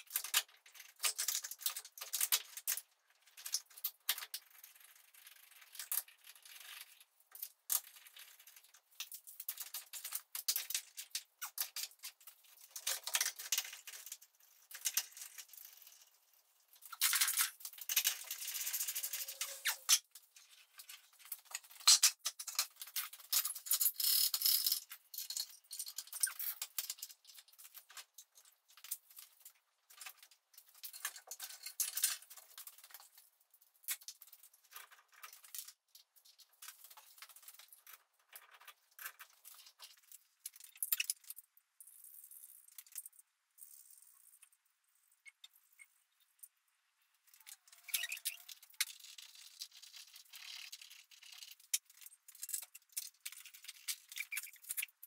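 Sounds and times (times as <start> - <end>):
metal tools clicking and rattling: 21.5 - 27.7.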